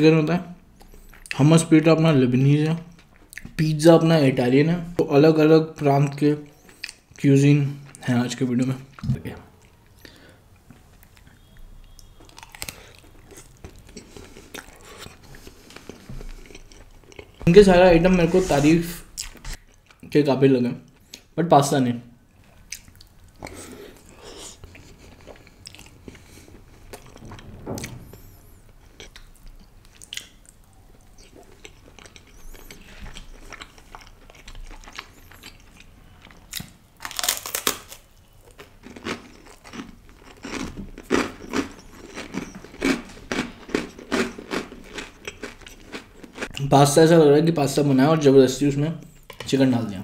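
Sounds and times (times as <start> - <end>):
soft chewing of pasta: 9.6 - 17.5, 18.2 - 20.2, 22.3 - 27.2, 28.8 - 46.6
crunchy bite and chewing: 11.9 - 17.4, 31.2 - 46.5.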